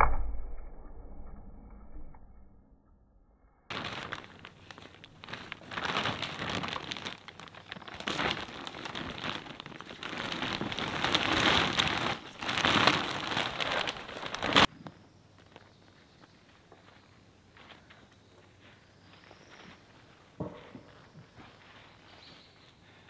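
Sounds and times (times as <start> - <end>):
plastic bag crinkling: 3.7 - 14.7
soil pouring and pattering: 3.7 - 14.7.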